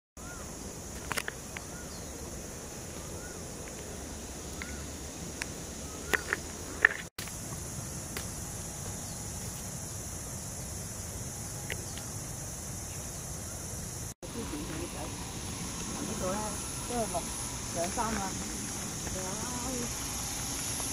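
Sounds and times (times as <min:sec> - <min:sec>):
insects droning: 0:00.2 - 0:20.9
bird chirps: 0:04.5 - 0:05.0, 0:05.8 - 0:06.5.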